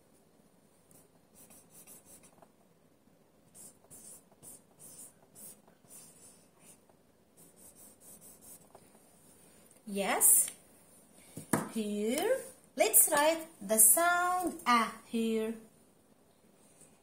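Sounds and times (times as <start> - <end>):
marker writing on whiteboard: 0.9 - 2.6, 3.5 - 8.9.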